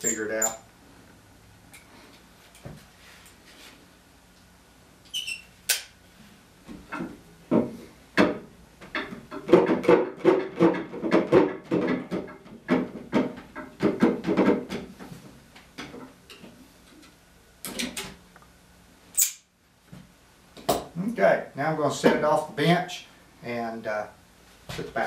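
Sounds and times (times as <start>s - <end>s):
wooden knocks and creaks: 6.7s - 16.5s.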